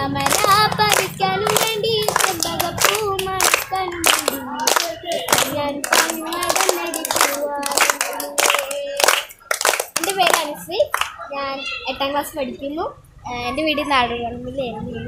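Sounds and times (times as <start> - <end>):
children clapping rhythmically: 0.0 - 11.3
child singing: 0.0 - 12.2.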